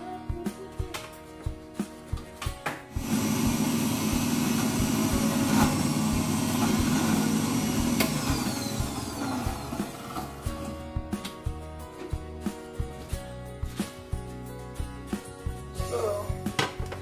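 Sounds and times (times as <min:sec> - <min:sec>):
electric blender running: 0:03.0 - 0:10.8.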